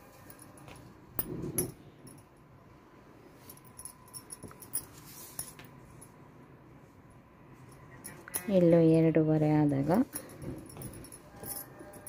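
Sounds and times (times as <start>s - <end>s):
fabric rustling: 3.3s - 6.0s.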